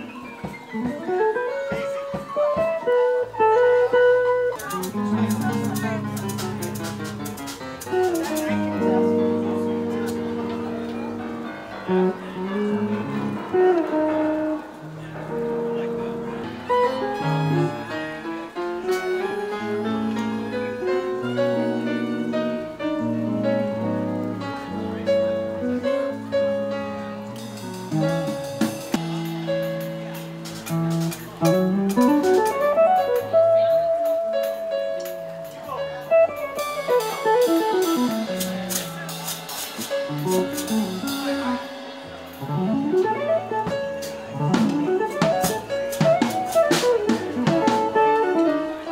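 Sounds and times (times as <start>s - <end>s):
clean electric guitar jazz chords: 0.0s - 48.9s
drums struck: 27.4s - 33.2s, 36.1s - 48.2s.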